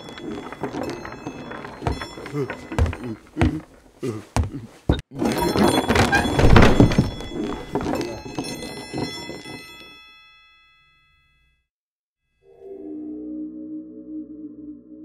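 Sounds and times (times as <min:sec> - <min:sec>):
heavy thuds and clattering: 0:00.0 - 0:09.7.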